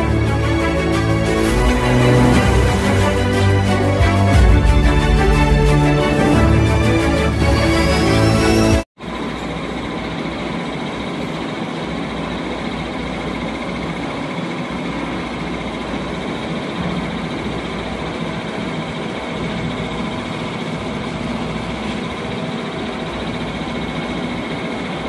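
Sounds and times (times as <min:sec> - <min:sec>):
music: 0:00.0 - 0:08.9
lathe running: 0:00.0 - 0:25.0.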